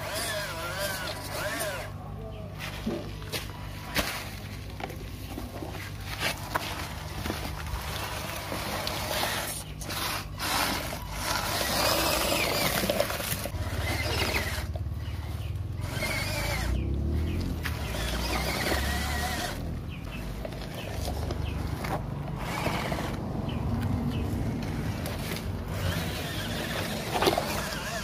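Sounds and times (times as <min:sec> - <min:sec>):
small electric motor running: 0:00.0 - 0:02.0, 0:07.7 - 0:21.6, 0:22.4 - 0:23.2, 0:24.8 - 0:28.0
tyres crunching on gravel: 0:00.0 - 0:28.0.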